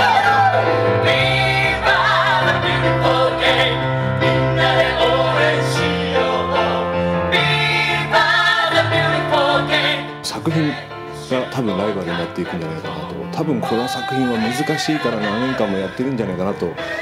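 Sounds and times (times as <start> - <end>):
person singing: 8.7 - 17.0.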